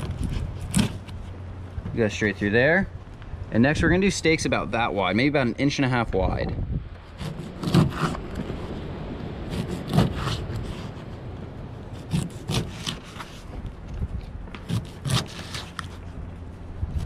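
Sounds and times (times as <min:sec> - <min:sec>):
knife sawing through fish: 0:00.2 - 0:01.1, 0:07.2 - 0:08.2, 0:09.5 - 0:11.0, 0:12.0 - 0:13.5, 0:14.6 - 0:16.1.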